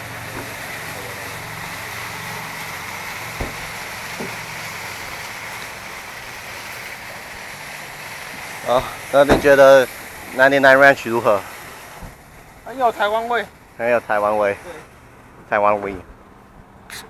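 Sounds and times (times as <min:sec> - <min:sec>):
broad outdoor hiss: 0:00.0 - 0:17.0
knocks in a car trunk: 0:03.4 - 0:04.4, 0:09.3 - 0:09.5.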